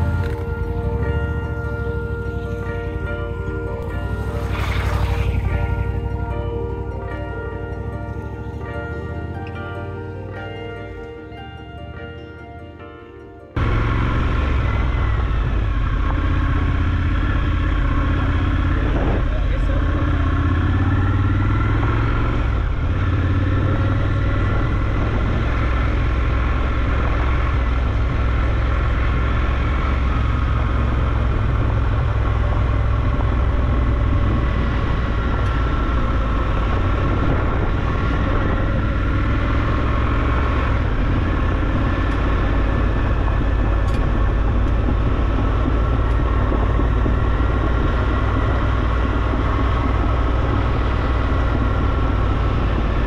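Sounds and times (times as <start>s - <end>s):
motorcycle engine running: 0.0s - 10.8s, 13.6s - 53.0s.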